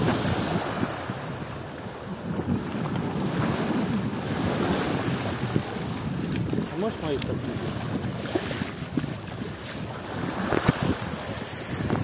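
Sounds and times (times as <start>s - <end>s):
waves washing on beach: 0.0s - 12.0s
wind buffeting microphone: 0.0s - 12.0s.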